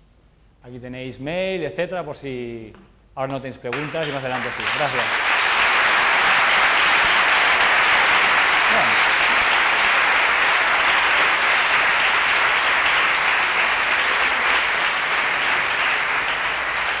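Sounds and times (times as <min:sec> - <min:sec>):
audience applauding: 0:03.7 - 0:17.0.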